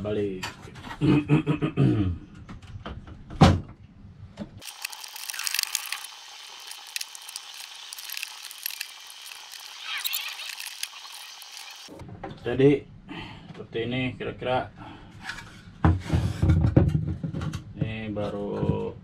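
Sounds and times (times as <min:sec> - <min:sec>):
small rapid clicks: 0:04.6 - 0:11.9
thin hiss: 0:04.6 - 0:12.0.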